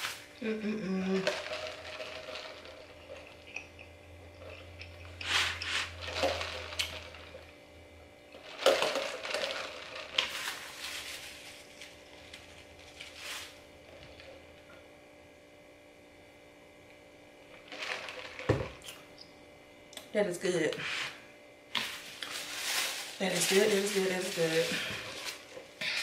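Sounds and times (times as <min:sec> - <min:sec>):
slurping through a straw: 0:04.4 - 0:07.4.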